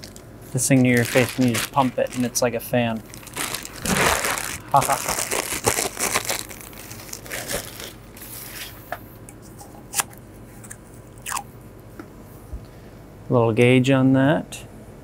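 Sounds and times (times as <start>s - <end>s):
plastic wrapping crinkling: 0.0s - 8.8s.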